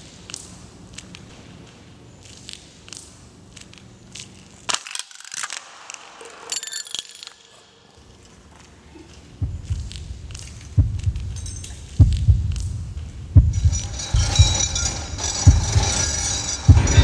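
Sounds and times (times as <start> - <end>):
deep low thud: 9.4 - 16.0, 16.6 - 17.0.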